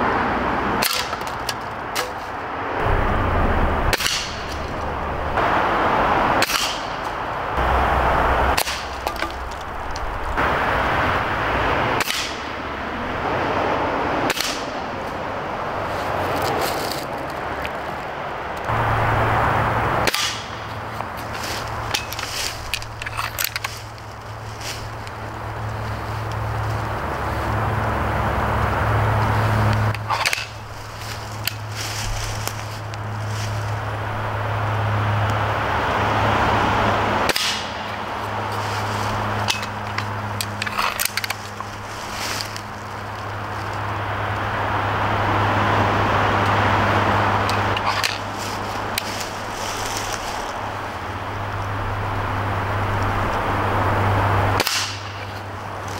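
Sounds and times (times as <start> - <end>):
steady low hum: 0.0 - 16.2
rifle handling clicks and knocks: 21.5 - 25.2, 39.4 - 41.7.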